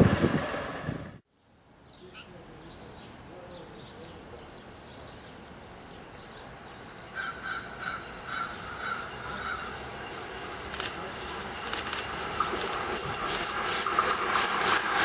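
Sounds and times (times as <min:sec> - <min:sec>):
bird harsh calls: 0:07.0 - 0:10.1.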